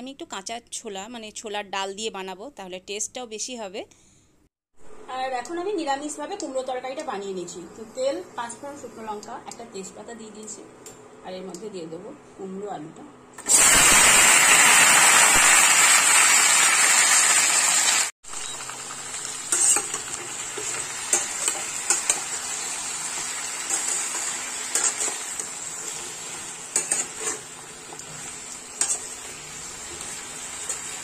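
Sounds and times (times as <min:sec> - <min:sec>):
vegetables sizzling in oil: 0:13.4 - 0:31.0
metal spatula scraping pan: 0:26.8 - 0:27.5.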